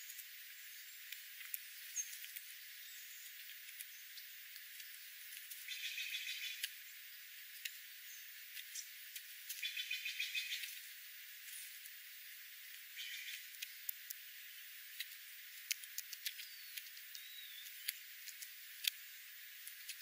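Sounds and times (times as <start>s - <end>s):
birds pecking on gravel: 0.0s - 20.0s
jays rattling calls: 5.4s - 6.8s, 8.6s - 10.8s, 12.8s - 14.2s.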